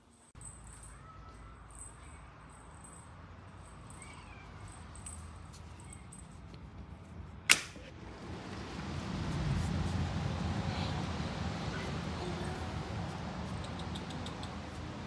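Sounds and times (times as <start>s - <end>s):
sharp loud click: 7.5s - 7.8s.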